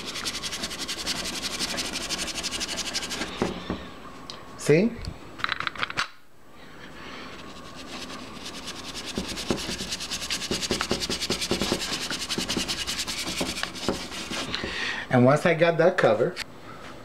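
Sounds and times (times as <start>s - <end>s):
brush scrubbing on paper: 0.0s - 3.4s, 7.2s - 14.6s.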